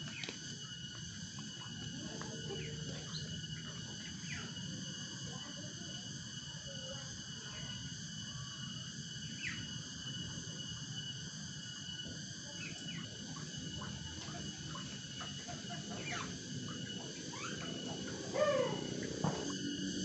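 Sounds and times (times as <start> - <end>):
cicadas buzzing: 0.0 - 20.0
loud animal call: 13.0 - 19.7.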